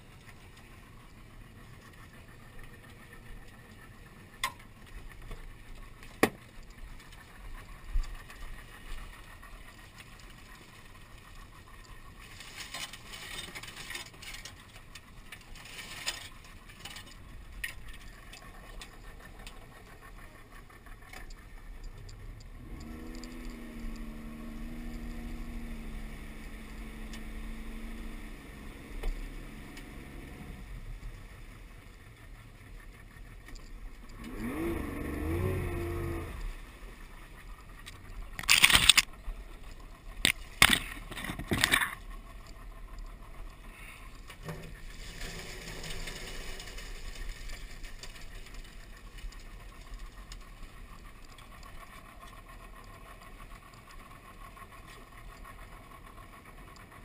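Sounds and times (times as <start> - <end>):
outboard motor running: 0.0 - 57.0
water rushing along hull: 0.0 - 57.0.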